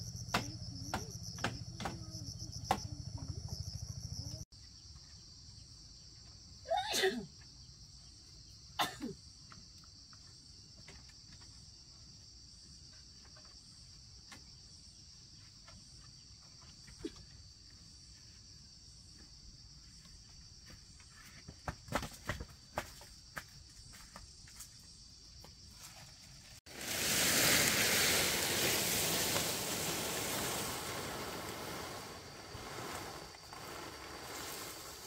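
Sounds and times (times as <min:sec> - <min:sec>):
insects shrilling: 0:26.7 - 0:35.0.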